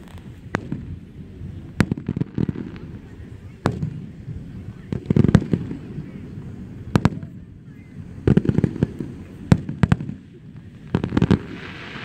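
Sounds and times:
fireworks bursting with sharp bangs: 0.0 - 12.0.

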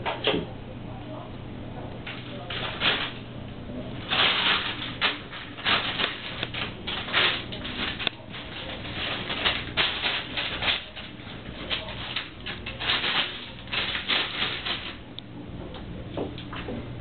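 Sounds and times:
plastic bag crinkling: 2.0 - 3.3, 4.0 - 15.1.

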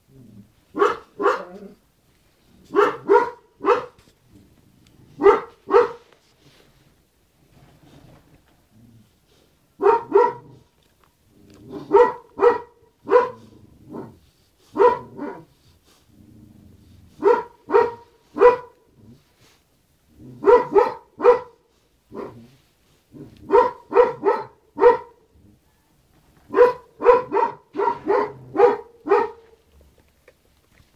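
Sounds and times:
dog barking: 0.8 - 1.6, 2.7 - 4.0, 5.2 - 6.1, 9.8 - 10.7, 11.7 - 15.5, 17.2 - 18.8, 20.4 - 22.4, 23.2 - 25.3, 26.5 - 29.6.

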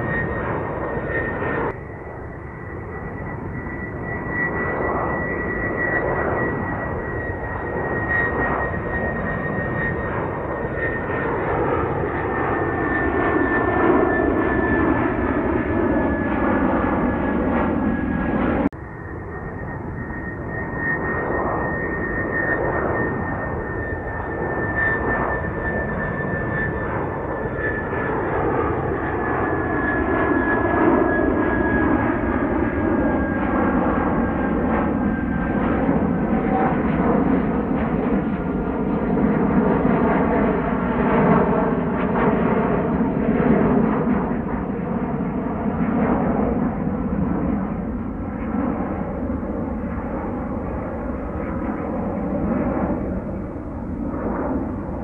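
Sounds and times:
high jet whine falling in pitch: 0.0 - 40.0
jet airliner rumble overhead: 0.0 - 55.0.

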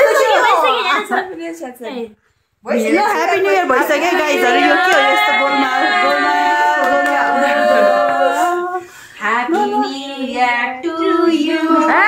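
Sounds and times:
women singing long notes: 4.2 - 12.0.

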